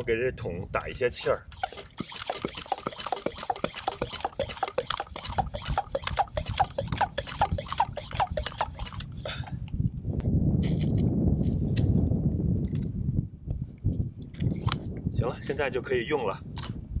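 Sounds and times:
hand pump strokes: 1.1 - 9.3.

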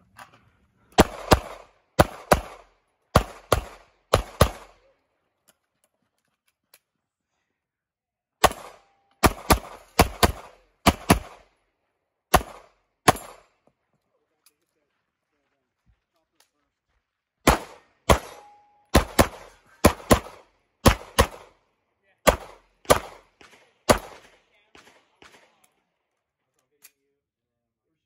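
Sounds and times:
handgun shots: 12.3 - 13.4, 17.4 - 21.5, 22.3 - 25.5.

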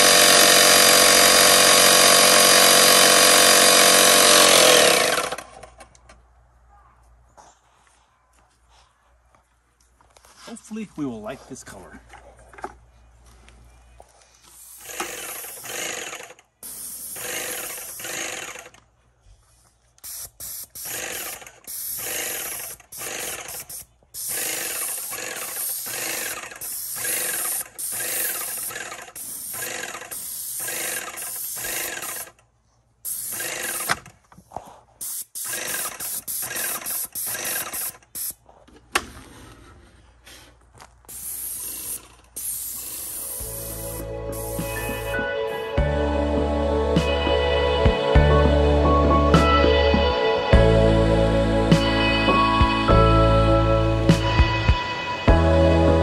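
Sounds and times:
sprayer pump running: 0.0 - 5.5, 14.6 - 18.8, 20.0 - 32.4, 33.1 - 34.1, 35.0 - 38.3, 41.1 - 45.8
paint spray hissing: 14.5 - 15.8, 16.6 - 18.1, 20.0 - 32.3, 33.0 - 33.9, 35.0 - 38.4, 41.1 - 45.2.

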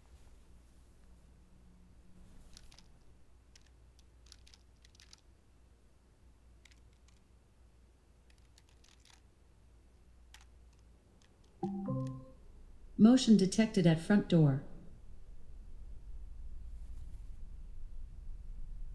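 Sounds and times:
low room hum: 0.0 - 18.9
laptop keyboard typing: 2.4 - 5.3, 6.6 - 7.2, 8.3 - 9.3, 10.3 - 12.3.

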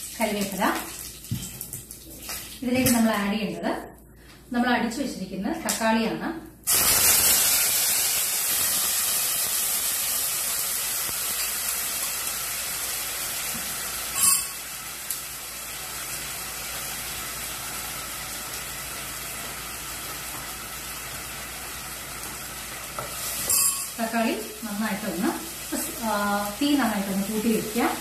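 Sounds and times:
tomato sizzling in hot fat: 6.7 - 28.0.

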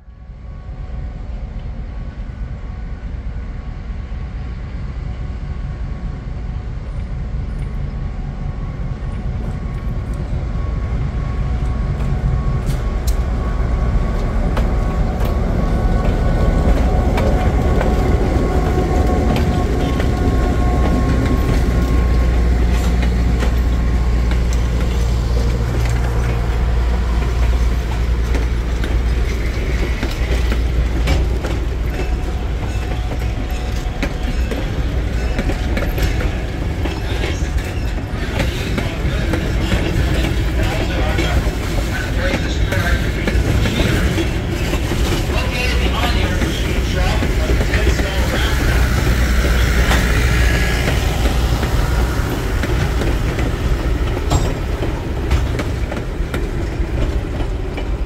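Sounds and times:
diesel locomotive engine drone: 0.0 - 58.0
wheels clicking over rail joints: 14.1 - 58.0.

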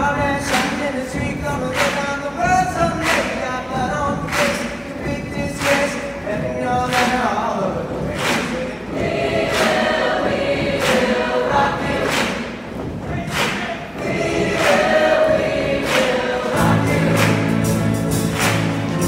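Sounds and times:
sharp beat: 0.0 - 19.0
large choir singing: 7.6 - 19.0.

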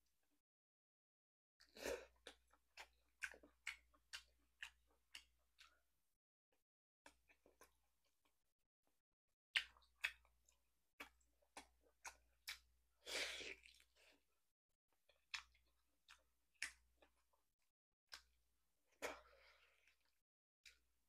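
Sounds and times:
person chewing meat: 1.7 - 5.9, 7.0 - 8.4, 9.5 - 14.2, 15.0 - 21.0.

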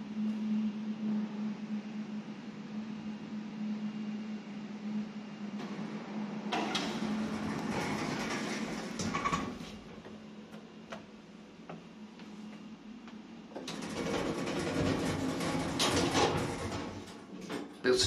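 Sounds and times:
low steady hum: 0.0 - 14.2
lift doors rumbling open: 5.5 - 11.6, 13.5 - 18.0.

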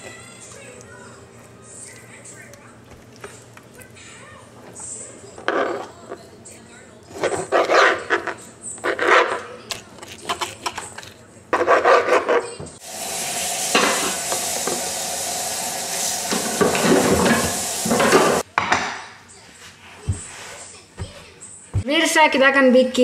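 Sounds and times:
food frying in oil: 12.8 - 18.4
utensils clattering against pans: 13.6 - 14.9, 16.2 - 19.0.

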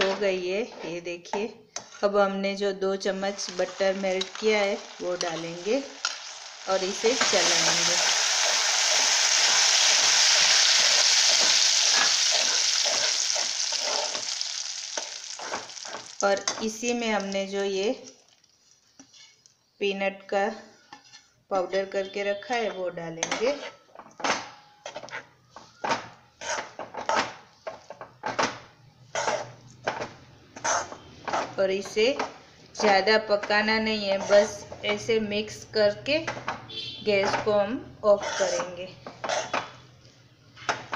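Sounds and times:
metal spatula scraping pan: 3.1 - 16.7, 19.0 - 19.4, 20.8 - 21.4, 26.4 - 27.4, 29.1 - 31.6, 32.8 - 35.1, 37.1 - 39.9
butter sizzling in melted sugar: 3.1 - 19.2.

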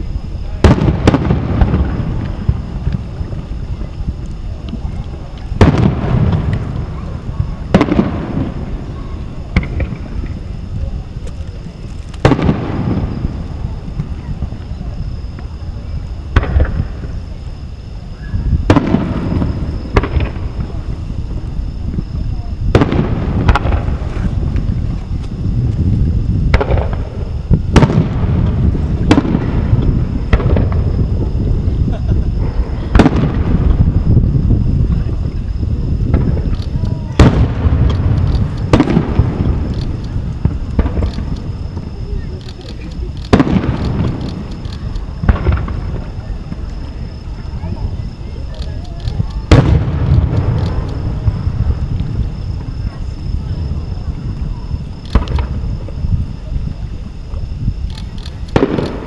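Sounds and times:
low rumble: 0.0 - 59.0
steady low background noise: 0.0 - 59.0
fireworks shells bursting: 36.0 - 47.2, 48.7 - 52.7, 57.9 - 59.0.

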